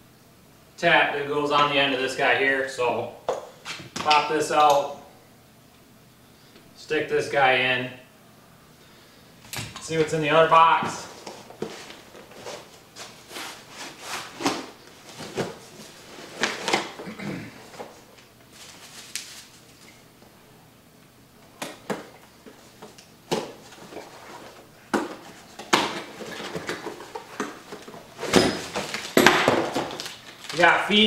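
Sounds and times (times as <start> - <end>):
cardboard and plastic rustling: 9.8 - 20.0, 21.8 - 31.0.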